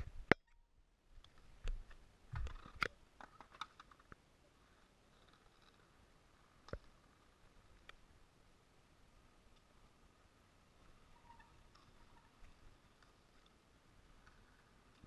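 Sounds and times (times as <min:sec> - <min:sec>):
faint hiss: 0:04.0 - 0:15.0.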